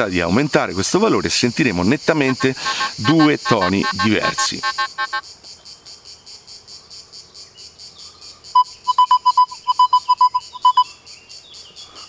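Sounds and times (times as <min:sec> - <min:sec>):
metal detector beeps: 0:02.2 - 0:05.2, 0:08.9 - 0:10.8.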